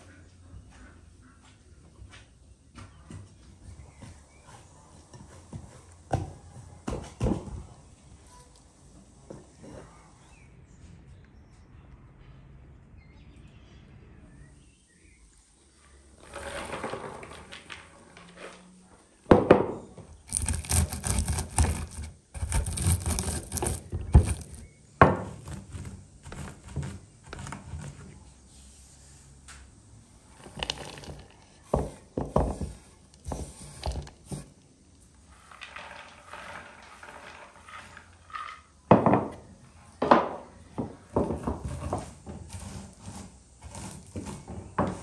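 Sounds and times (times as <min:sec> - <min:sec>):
nuts sliding into wooden bowl: 0:16.0 - 0:18.8, 0:20.2 - 0:28.1, 0:30.3 - 0:38.9, 0:41.1 - 0:45.0
nuts crunching under rolling pin: 0:20.2 - 0:28.0, 0:30.4 - 0:34.6.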